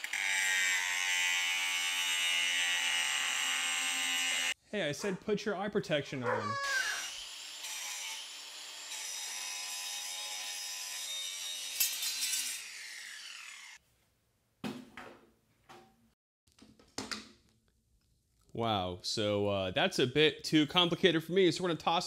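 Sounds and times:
angle grinder cutting metal: 0.0 - 4.6, 6.2 - 13.8.

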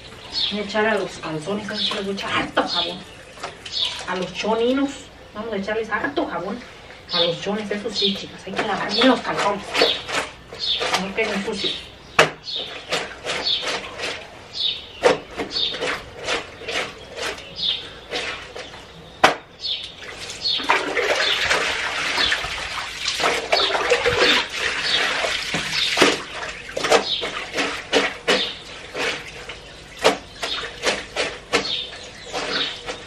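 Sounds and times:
water sloshing: 0.0 - 33.0
laundry scrubbed on washboard: 7.6 - 11.8, 12.5 - 14.3, 15.0 - 18.8, 20.1 - 33.0.

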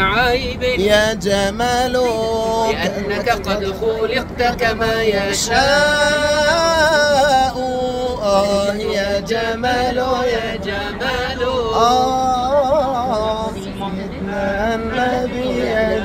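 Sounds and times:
men singing unaccompanied: 0.0 - 16.0.

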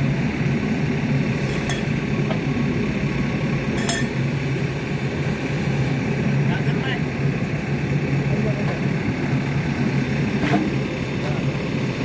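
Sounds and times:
diesel engine idling: 0.0 - 12.0
steel bar clinking on metal: 3.8 - 4.1.

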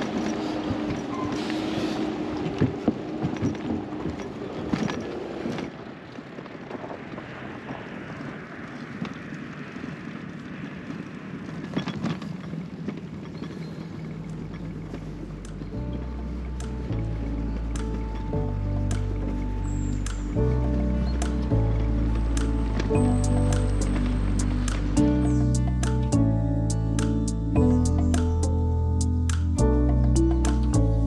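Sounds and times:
wind rushing: 0.0 - 12.9
ferry engine running: 0.0 - 31.0.

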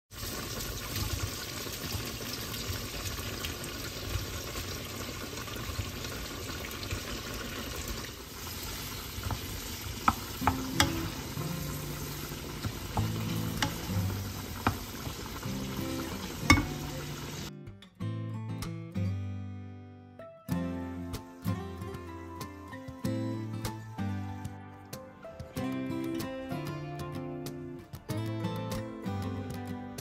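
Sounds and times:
food sizzling in oil: 0.1 - 17.5
wooden spoon stirring: 8.4 - 17.2
spoon clicking against pan: 10.0 - 15.2, 16.4 - 16.9.

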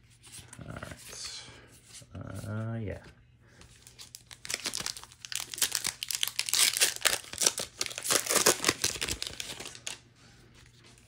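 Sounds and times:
foil wrapper crinkling: 3.8 - 10.0.

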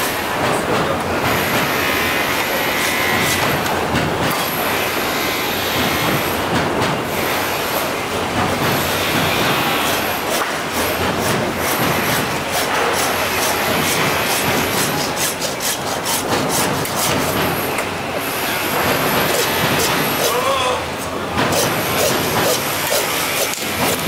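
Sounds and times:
hand saw cutting through bone: 11.2 - 17.4, 19.3 - 20.4, 21.5 - 24.0.

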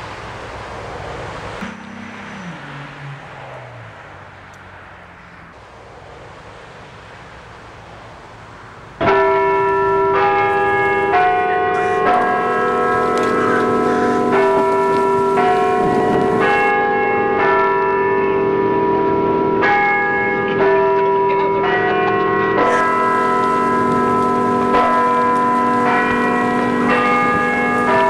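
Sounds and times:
bells ringing: 9.0 - 28.0.

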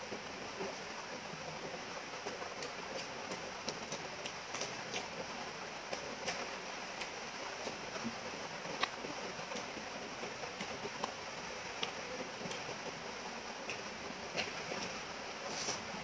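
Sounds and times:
steady hiss: 0.0 - 16.0
person chewing with smacks: 2.2 - 5.2, 5.9 - 12.8, 13.6 - 15.9.

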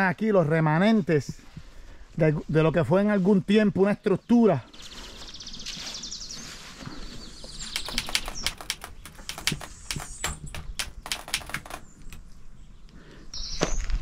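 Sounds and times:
footsteps crunching on dry leaves: 4.7 - 7.4.

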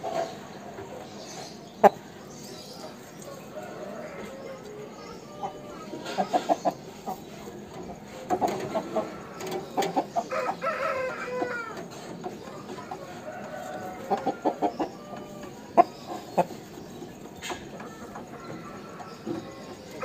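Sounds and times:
rooster clucking: 3.4 - 20.0
rooster crowing: 3.5 - 5.8, 10.2 - 11.8, 13.0 - 15.6.

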